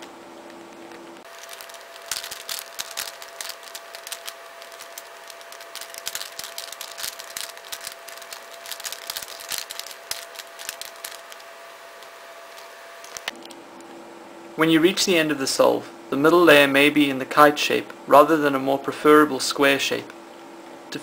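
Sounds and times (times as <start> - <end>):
faint steady hum: 0.0 - 21.0
plastic puzzle clicking: 1.4 - 13.2.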